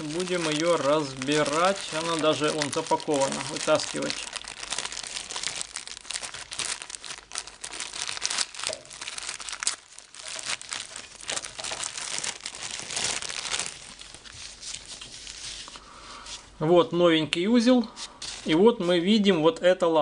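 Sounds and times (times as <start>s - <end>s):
plastic bag crinkling: 0.0s - 15.8s.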